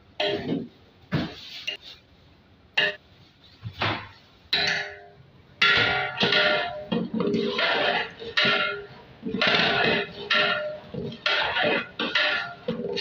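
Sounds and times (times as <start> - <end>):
spoon clinking on metal pot: 4.6 - 13.0.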